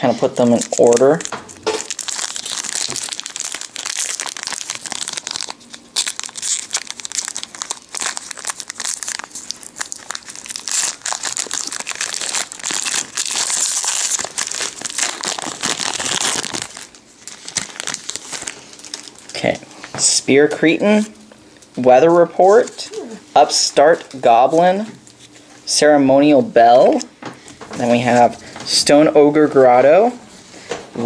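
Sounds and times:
foil wrapper crinkling and tearing: 0.3 - 19.6.

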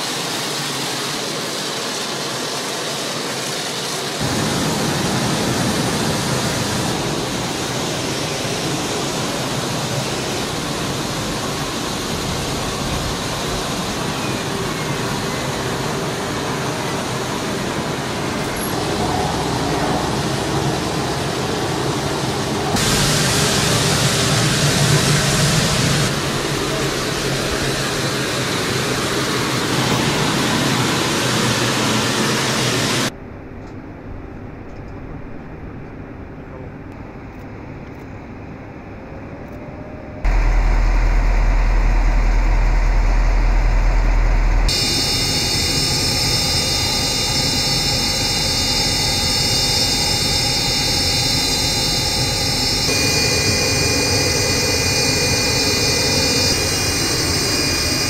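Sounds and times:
jet turbine whine: 0.0 - 33.2, 38.6 - 58.0
steady rushing noise: 0.0 - 33.3, 40.2 - 58.0
vehicle engine deep rumble: 40.2 - 44.7.

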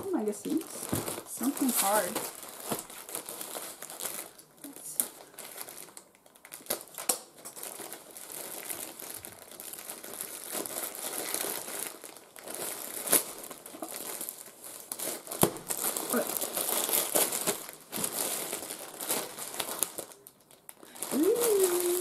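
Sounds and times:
plastic mailer bag crinkling: 0.0 - 22.0.

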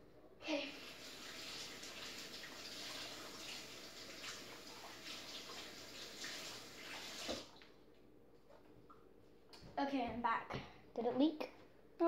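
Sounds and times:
water running from a tap: 0.5 - 7.6
hands washing under water: 0.8 - 7.6.

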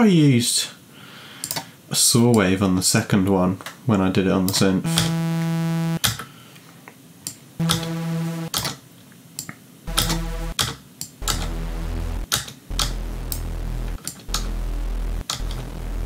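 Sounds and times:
synth notes: 4.9 - 6.0, 7.6 - 8.6, 9.9 - 10.6, 11.2 - 16.0.

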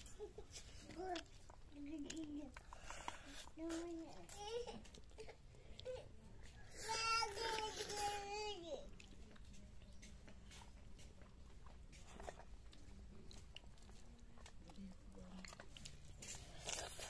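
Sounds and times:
chewing: 0.0 - 17.0.

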